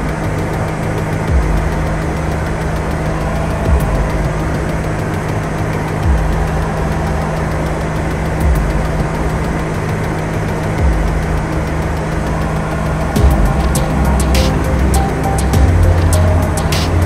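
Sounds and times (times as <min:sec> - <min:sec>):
aircraft engine and propeller hum: 0:00.0 - 0:17.0
soft low thumps: 0:01.2 - 0:02.7, 0:03.6 - 0:04.8, 0:06.0 - 0:07.4, 0:08.4 - 0:09.7, 0:10.8 - 0:12.2, 0:13.2 - 0:14.6, 0:15.6 - 0:17.0.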